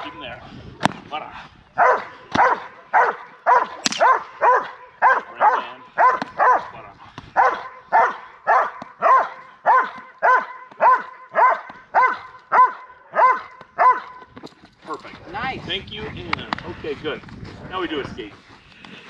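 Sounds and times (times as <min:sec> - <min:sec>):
dog barking: 0:01.8 - 0:06.8, 0:07.4 - 0:14.3.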